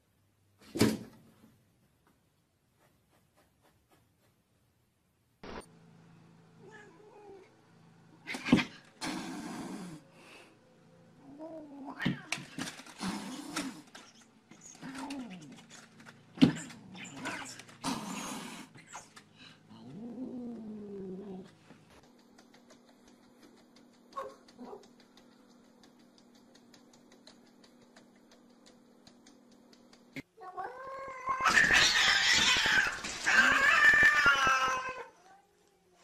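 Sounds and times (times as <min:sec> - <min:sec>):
cat hissing: 0:08.2 - 0:10.2, 0:12.9 - 0:14.0
cat yowling: 0:30.4 - 0:35.1.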